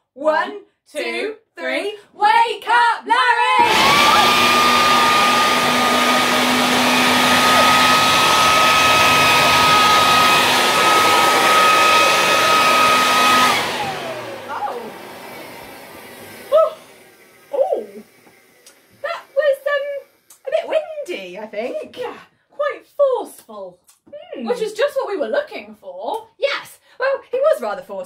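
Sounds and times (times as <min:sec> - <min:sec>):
leaf blower running: 0:03.6 - 0:20.9.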